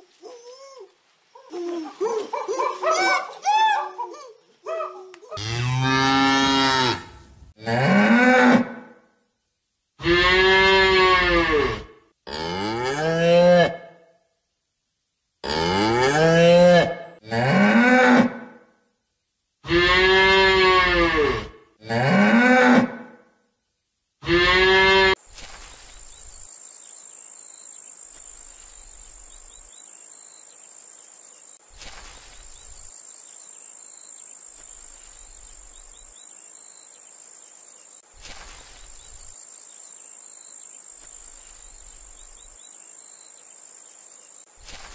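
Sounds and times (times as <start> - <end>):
insect chirring: 25.2 - 44.9.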